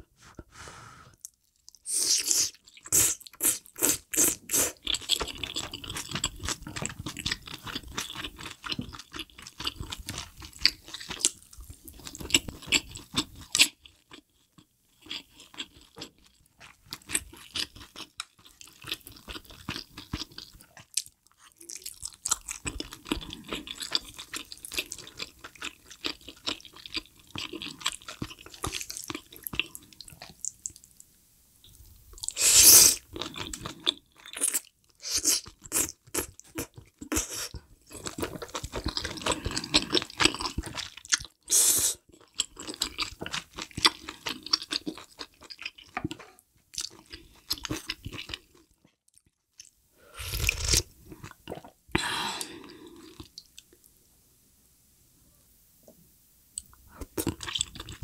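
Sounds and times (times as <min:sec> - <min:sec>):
chewing and crunching food: 0:02.5 - 0:32.4, 0:33.0 - 0:51.8, 0:52.4 - 0:53.9, 0:56.6 - 0:58.0
wet mouth sounds: 0:50.2 - 0:51.8.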